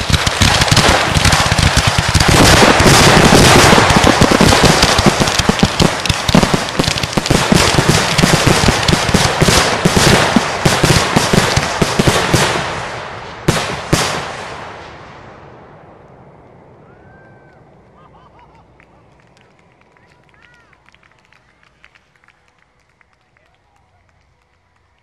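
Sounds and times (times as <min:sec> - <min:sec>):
sharp bangs: 0:00.0 - 0:15.5
fireworks launches and bursts: 0:00.0 - 0:16.2.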